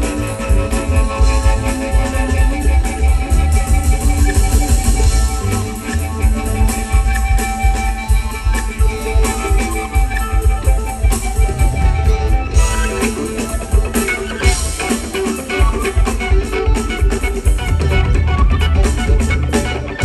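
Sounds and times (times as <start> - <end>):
electric guitar leading: 0.0 - 20.0
live band playing: 0.0 - 20.0.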